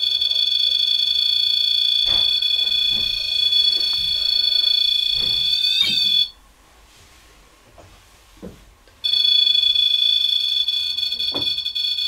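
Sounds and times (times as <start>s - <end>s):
electronic alarm tone: 0.0s - 6.4s, 9.0s - 12.0s.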